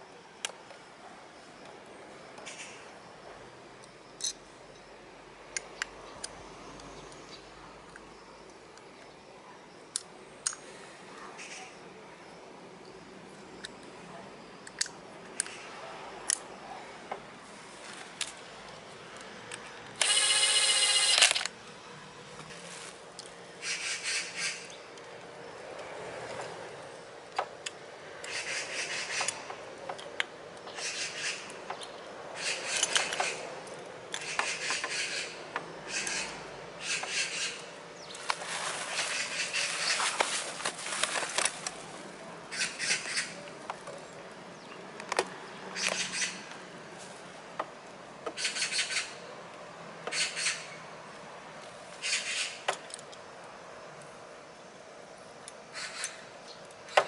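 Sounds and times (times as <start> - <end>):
sharp metallic clicks: 18.2 - 21.6.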